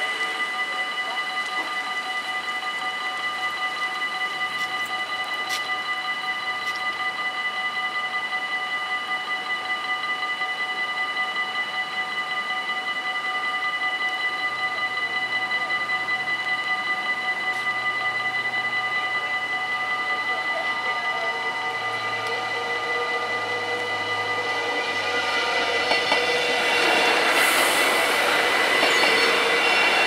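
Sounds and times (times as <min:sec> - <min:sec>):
level crossing bells ringing: 0:13.7 - 0:30.0.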